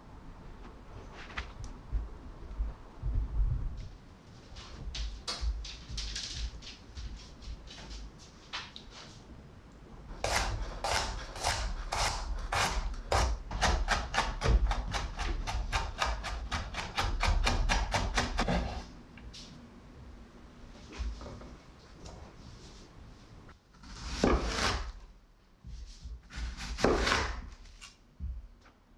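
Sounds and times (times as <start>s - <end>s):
knife chopping on wooden board: 10.2s - 18.8s, 23.9s - 24.9s, 26.3s - 27.4s.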